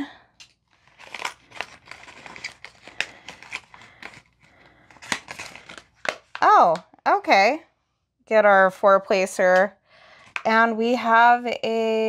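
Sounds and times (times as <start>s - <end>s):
packaging pouch crinkling: 0.4s - 6.4s.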